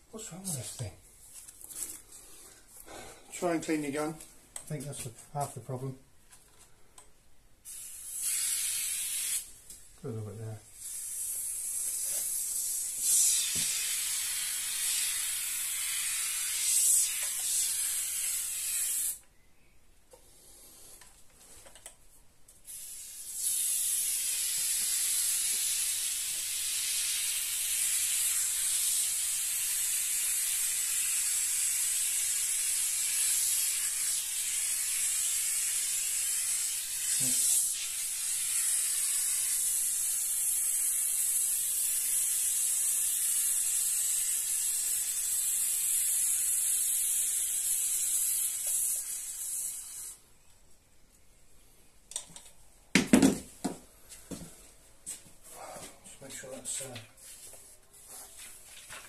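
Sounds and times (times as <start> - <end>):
foam hissing from aerosol can: 7.6 - 9.6, 10.8 - 19.2, 22.6 - 50.2.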